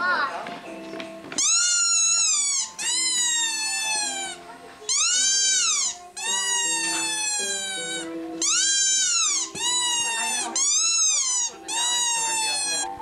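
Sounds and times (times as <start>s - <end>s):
music with stepping melody: 0.3s - 1.5s
cat meowing: 1.4s - 13.0s.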